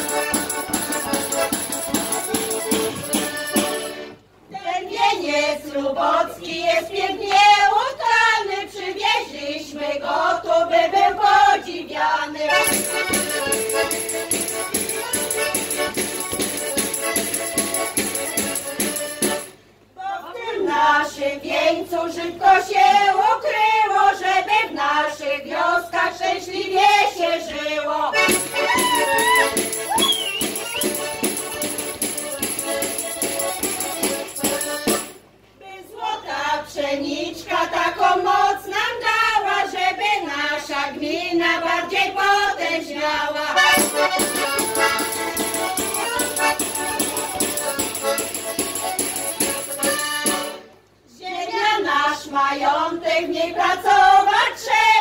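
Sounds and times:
accordion: 0.0s - 4.3s, 12.3s - 19.6s, 28.0s - 35.3s, 43.3s - 50.8s
women singing together: 0.0s - 14.0s, 20.0s - 31.0s, 33.2s - 46.4s, 49.9s - 55.0s.

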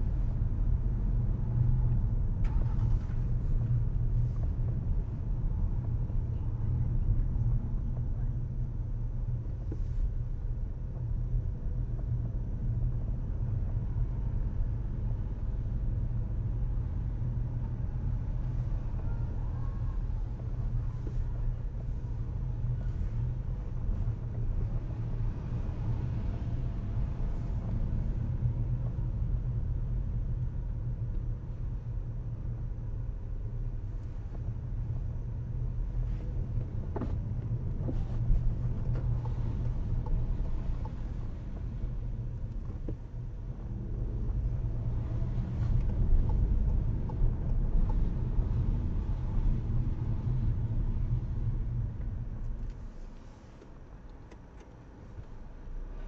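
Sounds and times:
car interior rumble: 0.0s - 56.0s.

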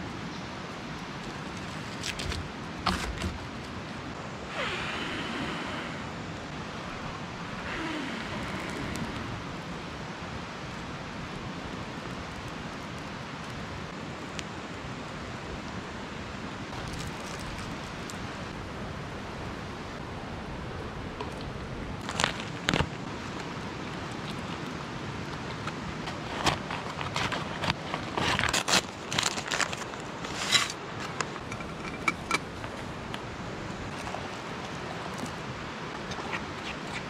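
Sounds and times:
steady background hiss: 0.0s - 27.4s.

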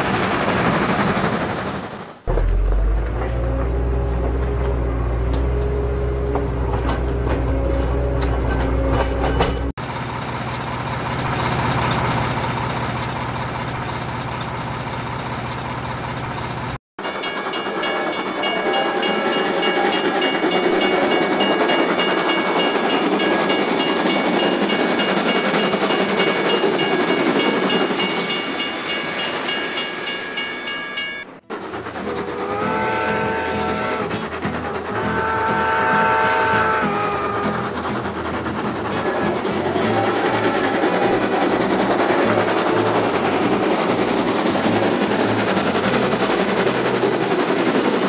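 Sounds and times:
toy train whining: 17.1s - 48.0s
toy train horn: 17.7s - 22.1s, 32.0s - 37.8s, 39.0s - 41.3s.

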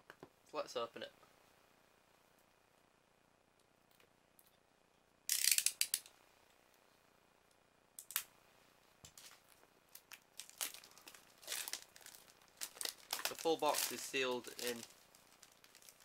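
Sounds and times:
plastic film crinkling: 9.1s - 16.0s.

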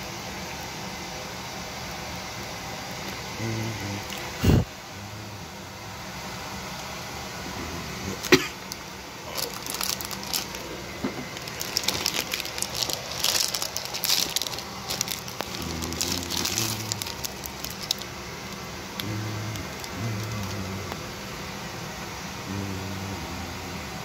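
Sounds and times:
plastic packaging crinkling: 8.2s - 21.0s.

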